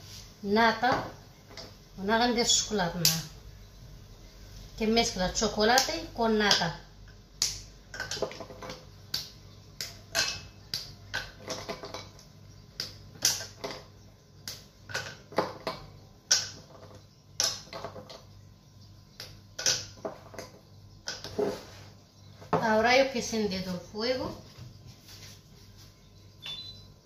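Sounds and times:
chocolate snapping: 7.4 - 11.4, 12.8 - 13.6, 14.4 - 14.7.

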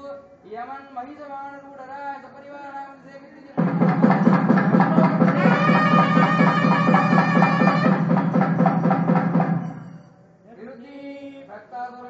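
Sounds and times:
quick drum strokes: 3.6 - 10.1.

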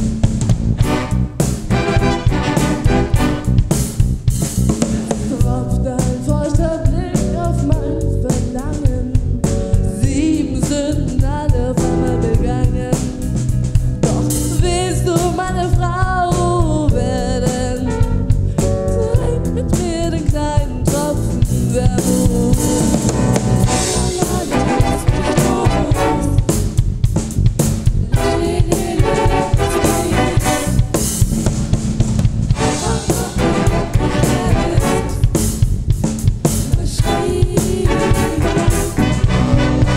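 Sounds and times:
big band playing: 0.0 - 39.9
drum kit beat: 0.0 - 39.9
group of vocalists singing: 22.0 - 26.5, 28.1 - 30.8, 32.6 - 35.4, 36.7 - 39.9.

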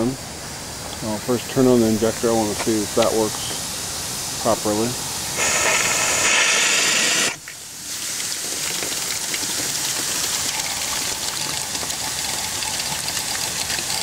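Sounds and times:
loud steam hiss: 0.0 - 8.4
steam injector gushing hiss: 0.0 - 11.0.

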